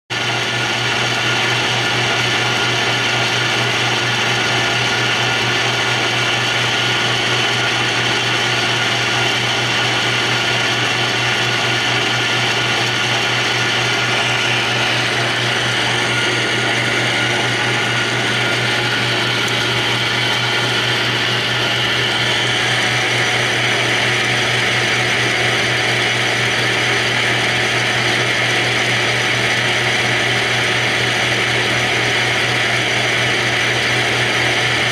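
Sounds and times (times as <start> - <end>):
lathe motor whirring: 0.1 - 34.9.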